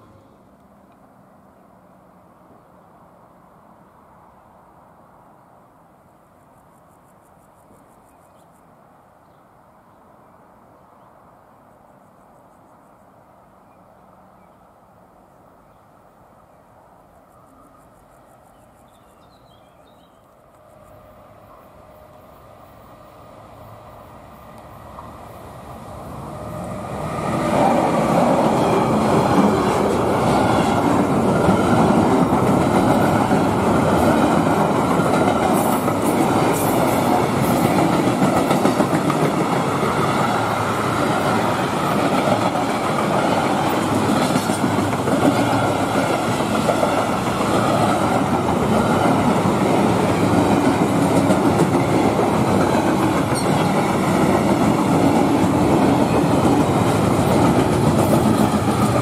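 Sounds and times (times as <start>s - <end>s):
freight train passing: 0.0s - 6.1s, 13.2s - 59.0s
wheels clattering on rails: 26.6s - 59.0s.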